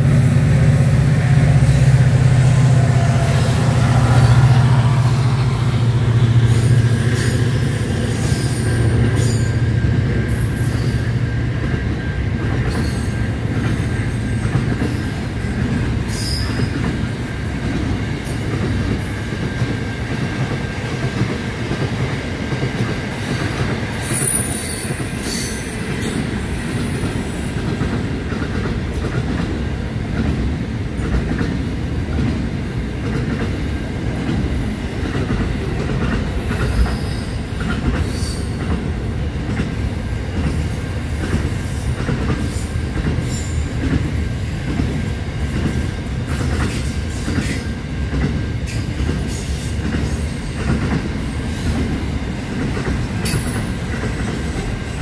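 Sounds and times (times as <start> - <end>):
diesel locomotive engine drone: 0.0 - 55.0
train wagons rumbling: 0.0 - 55.0
train wheels squealing: 6.2 - 17.3, 23.2 - 27.6, 36.5 - 38.8, 41.7 - 43.9, 53.2 - 55.0.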